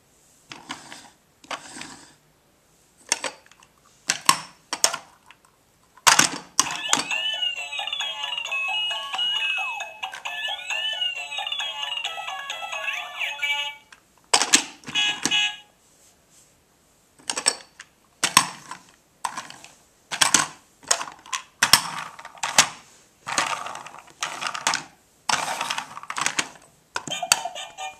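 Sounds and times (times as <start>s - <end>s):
toy electronic tune and effects: 6.7s - 13.9s, 15.0s - 15.7s, 27.1s - 27.9s
plastic toys clattering on wood floor: 17.3s - 27.1s.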